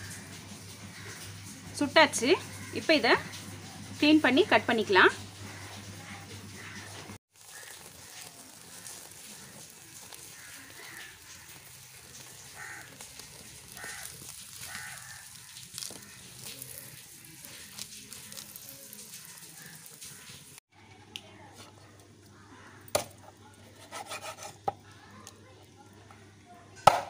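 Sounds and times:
crows cawing: 0.0s - 1.5s, 2.4s - 3.4s, 5.4s - 20.5s, 22.2s - 23.0s
wood fire crackling and popping: 7.3s - 20.4s.

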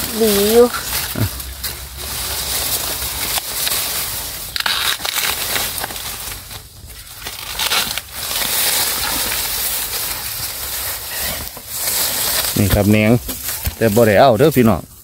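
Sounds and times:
leaves rustling and crunching: 0.0s - 15.0s
sharp cracks of bamboo: 2.8s - 12.6s.

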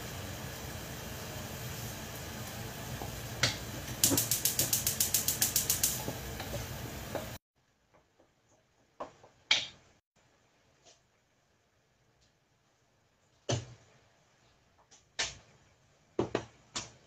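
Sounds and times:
fast sharp clicks: 4.0s - 6.0s.

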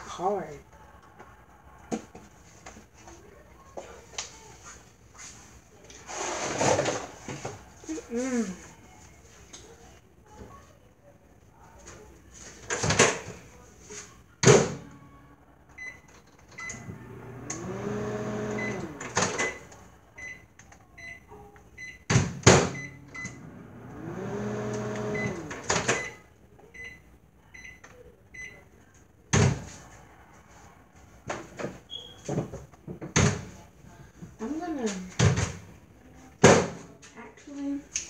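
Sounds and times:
appliance humming: 16.6s - 19.8s, 22.2s - 26.2s.

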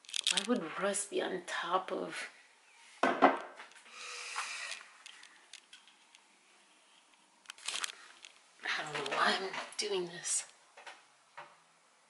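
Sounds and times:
camera being handled: 0.0s - 0.5s, 7.4s - 8.4s
brief hiss: 3.9s - 4.9s.

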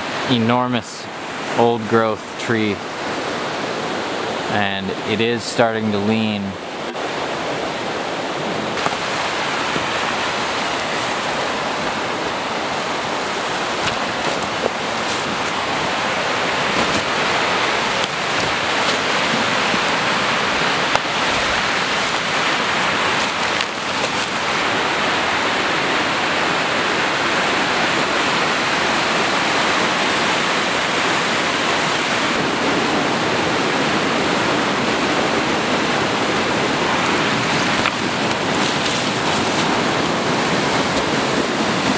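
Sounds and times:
creek water rushing: 0.0s - 41.9s
footsteps through undergrowth: 8.8s - 24.7s, 36.9s - 40.6s.

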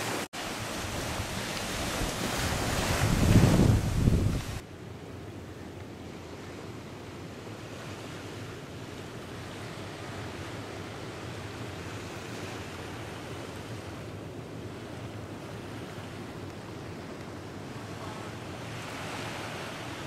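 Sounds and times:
surf washing onto beach: 0.0s - 4.6s, 6.4s - 20.0s
wind on microphone: 0.0s - 4.6s.

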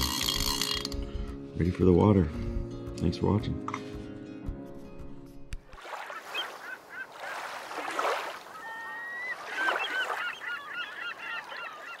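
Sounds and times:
washes of noise like waves: 5.8s - 8.6s
flock of birds calling: 8.5s - 12.0s.

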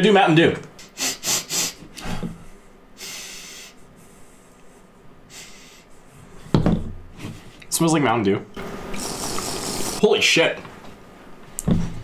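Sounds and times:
breathing through the nose: 1.0s - 6.0s
slurping drink through a straw: 8.9s - 10.0s.

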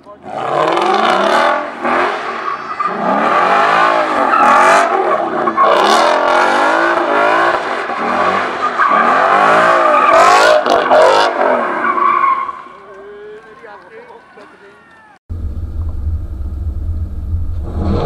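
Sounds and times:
car engine revving: 0.1s - 12.0s, 15.3s - 18.0s.

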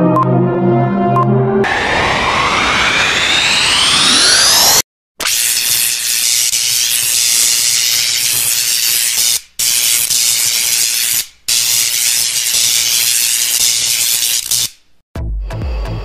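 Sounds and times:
low hum: 1.6s - 4.8s.

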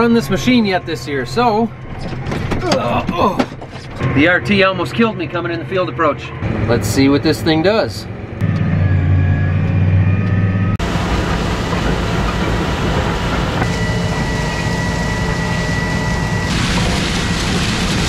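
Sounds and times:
tractor engine running: 8.1s - 18.0s
thin high whine: 8.4s - 18.0s.

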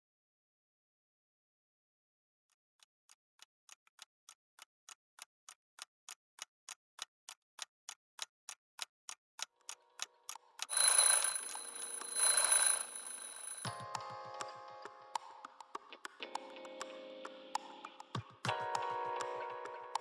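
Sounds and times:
clock ticking: 4.0s - 13.7s
alarm ringing: 10.7s - 13.7s.

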